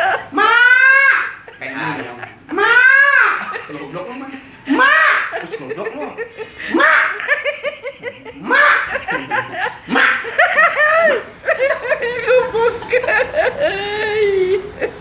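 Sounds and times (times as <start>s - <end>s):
excited voices: 0.0s - 15.0s
people laughing loudly: 0.0s - 15.0s.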